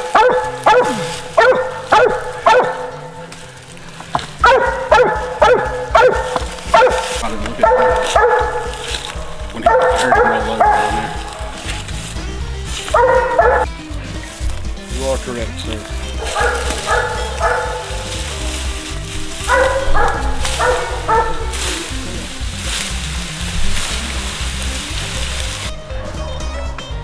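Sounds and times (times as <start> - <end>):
dog barking: 0.0 - 3.3, 4.3 - 11.8, 12.8 - 13.7, 16.1 - 18.7, 19.3 - 22.3
background music: 0.0 - 27.0.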